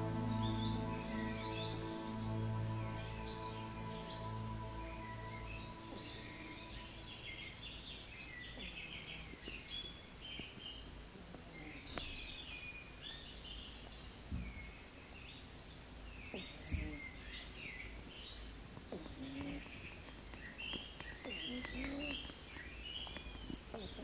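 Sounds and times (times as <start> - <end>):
low steady rumble: 0.0 - 8.0
small birds chirping: 0.0 - 24.0.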